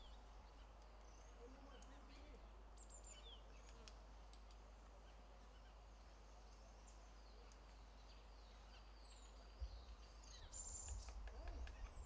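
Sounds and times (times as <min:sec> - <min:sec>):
light ticks: 0:01.7 - 0:02.0, 0:03.6 - 0:04.6, 0:07.4 - 0:07.8.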